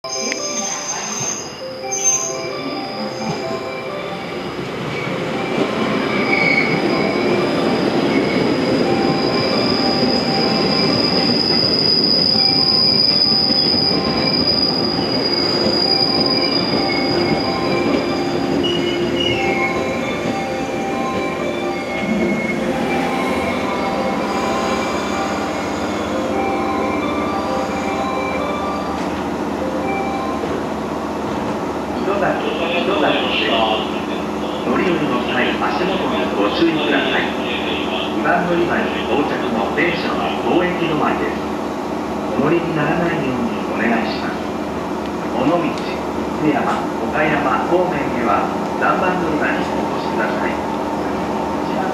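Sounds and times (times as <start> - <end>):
high brake squeal: 0.0 - 3.4, 6.0 - 19.9, 21.8 - 26.2.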